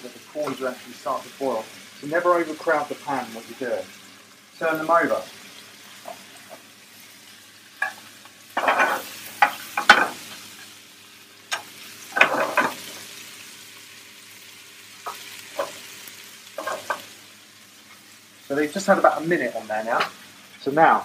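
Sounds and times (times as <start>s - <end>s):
prawns sizzling in a pan: 0.0s - 21.0s
cookware clattering and scraping: 8.6s - 10.2s, 12.2s - 12.8s, 16.6s - 17.1s.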